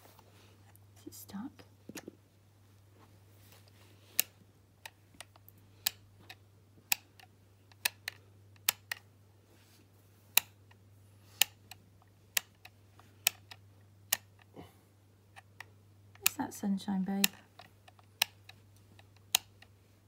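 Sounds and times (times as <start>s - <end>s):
plastic dial clicks: 17.2s - 19.7s.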